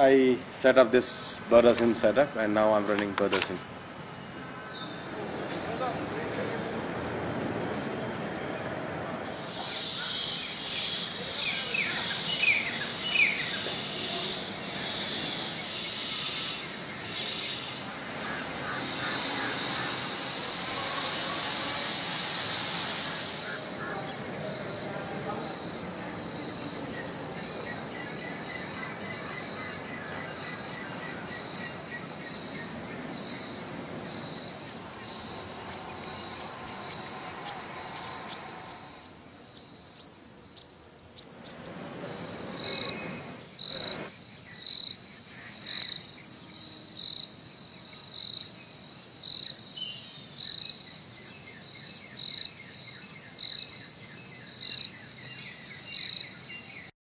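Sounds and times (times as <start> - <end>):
insects chirping: 0.0 - 56.9
bird calls: 9.4 - 46.6
sharp high bird chirps: 25.5 - 46.1.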